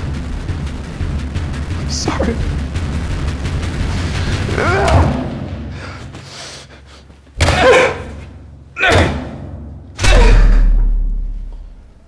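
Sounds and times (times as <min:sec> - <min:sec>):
deep low boom: 0:00.0 - 0:05.8
heavy blows: 0:00.0 - 0:12.0.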